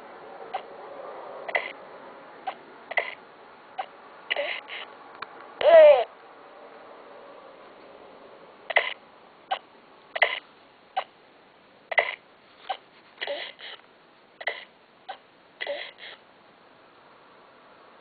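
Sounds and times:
baby making short sharp sounds: 5.6 - 6.1.

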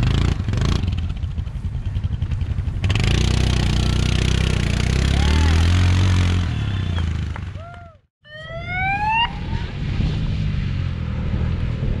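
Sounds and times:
atv engine revving: 0.0 - 7.7.

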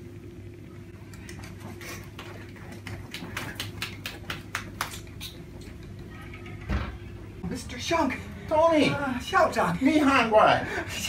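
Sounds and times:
people clapping: 2.2 - 5.3.

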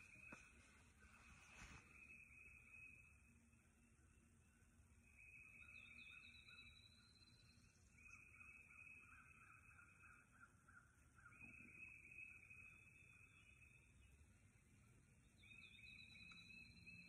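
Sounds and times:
chirping bird trill: 5.1 - 10.3, 15.4 - 17.0.

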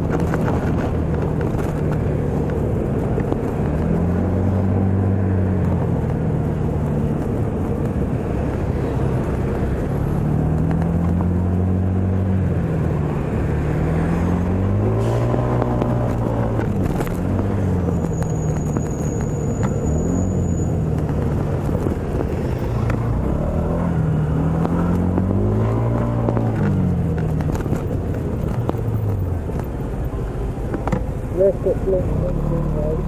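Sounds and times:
wind rumble on microphone: 0.0 - 31.3.

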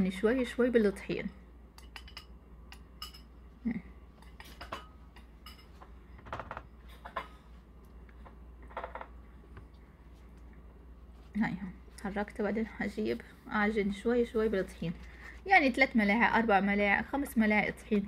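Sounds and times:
metal spoon clinking on bowl: 1.8 - 3.3, 4.2 - 5.8.

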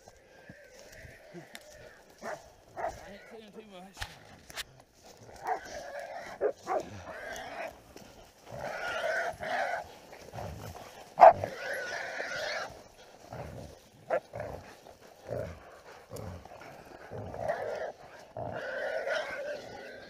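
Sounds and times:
dogs barking: 1.5 - 3.2, 5.4 - 12.8, 14.0 - 20.0.

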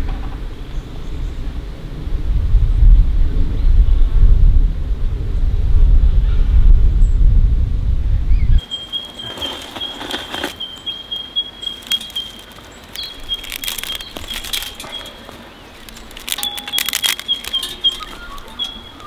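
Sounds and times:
twigs scraping in steel fire pit: 8.6 - 19.0.

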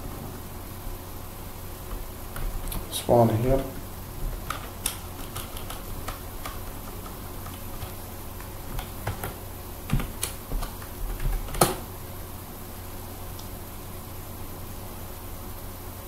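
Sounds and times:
computer keyboard keystrokes: 4.4 - 11.8.

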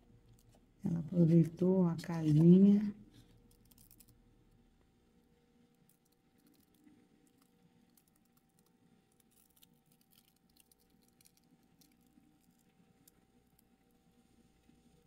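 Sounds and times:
low steady hum: 0.0 - 15.0
light crackles and ticks: 5.6 - 15.0.

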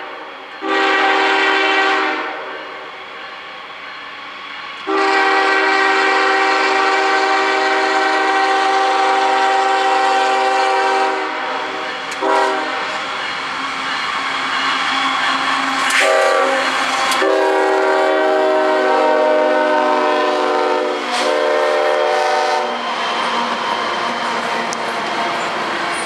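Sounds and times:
locomotive air horn blasts: 0.0 - 2.5, 4.8 - 13.0, 15.8 - 22.8.

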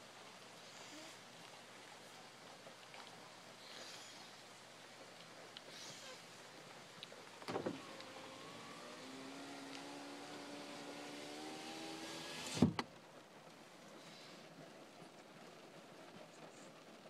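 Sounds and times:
power window motor whining: 7.4 - 12.9
window glass thumping shut: 7.5 - 7.8.

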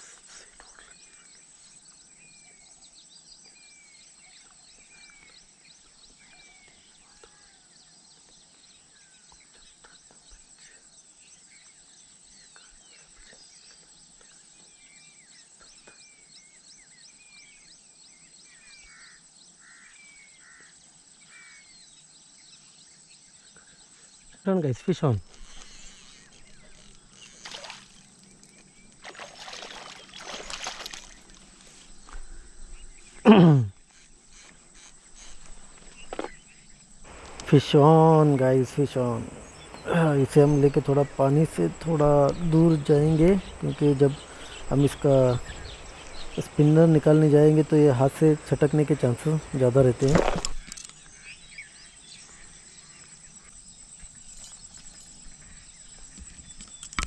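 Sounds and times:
high insect chirring: 25.0 - 33.2, 33.8 - 51.3
fish thrashing on grass: 25.4 - 32.0
soft footsteps on grass: 25.4 - 33.2, 37.1 - 50.6
fish splashing at water surface: 27.2 - 31.8.

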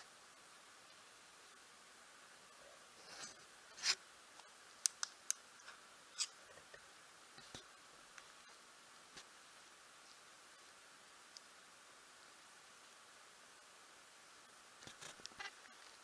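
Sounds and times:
small sharp clicks: 4.4 - 5.4.

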